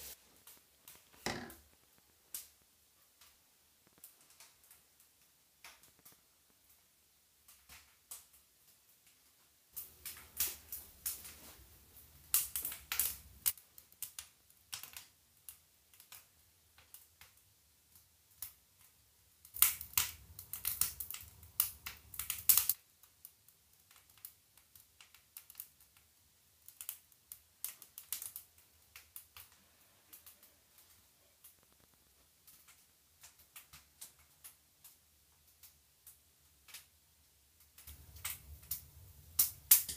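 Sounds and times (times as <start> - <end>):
clicks taps and knocks in wooden room: 0.4 - 11.5, 12.3 - 39.9.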